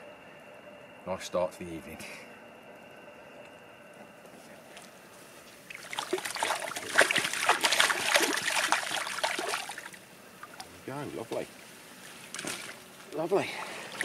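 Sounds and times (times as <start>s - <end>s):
water splashing and sloshing: 5.6s - 14.0s.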